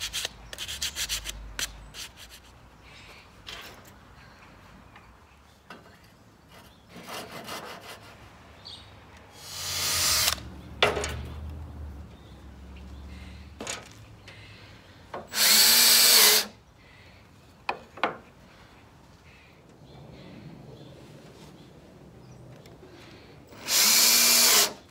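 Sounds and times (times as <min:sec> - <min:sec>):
cordless drill drilling into wood: 0:09.4 - 0:10.4, 0:15.3 - 0:16.5, 0:23.6 - 0:24.9
tool handling clicks and knocks: 0:10.8 - 0:11.4, 0:13.6 - 0:14.4.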